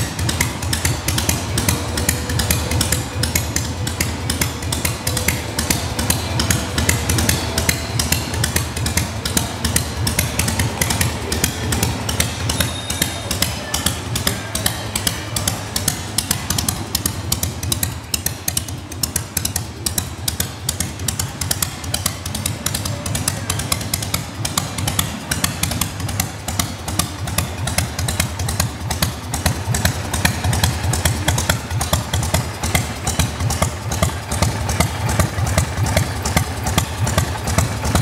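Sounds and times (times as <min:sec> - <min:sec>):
motorcycle engine idling: 0:00.0 - 0:38.0.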